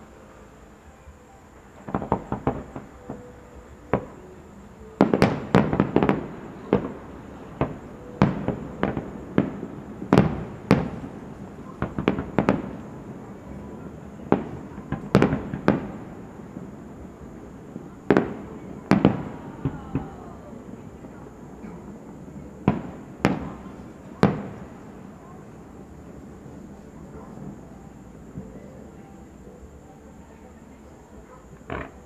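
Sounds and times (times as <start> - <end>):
fireworks bursting: 0.0 - 32.0.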